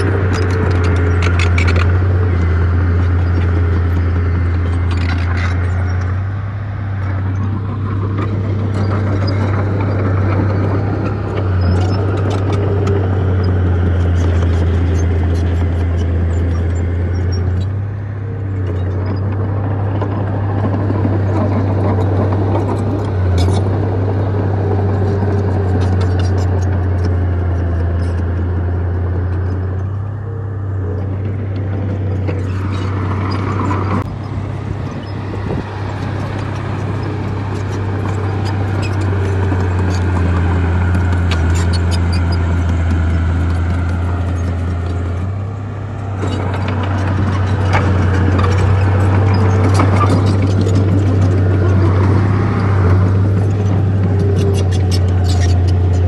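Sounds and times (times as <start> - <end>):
clanks and scrapes: 0.0 - 6.2, 34.9 - 45.4, 46.0 - 56.0
bulldozer diesel engine: 0.0 - 56.0.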